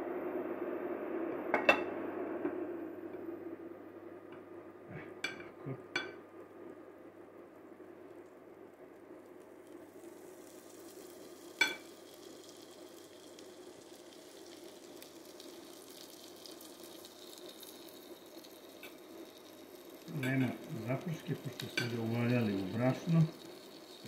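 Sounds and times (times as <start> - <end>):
meat sizzling in a pot: 7.9 - 24.0.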